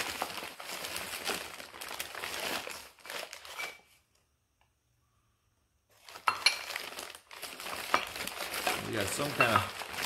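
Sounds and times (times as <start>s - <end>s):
packing paper crumpling: 0.0s - 3.8s, 5.9s - 10.0s.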